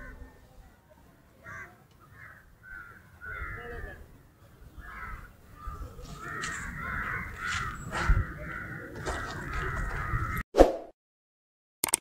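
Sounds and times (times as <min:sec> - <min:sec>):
crows cawing: 0:01.4 - 0:10.4
low wind rumble: 0:02.1 - 0:10.4.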